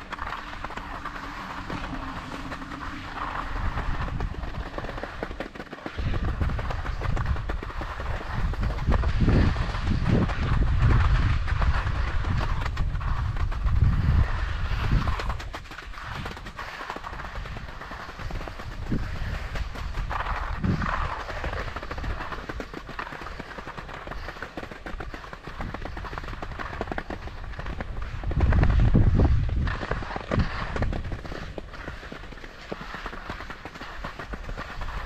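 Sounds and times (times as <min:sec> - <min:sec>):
low rumble: 0:00.0 - 0:16.1
skis sliding over snow: 0:00.0 - 0:35.0.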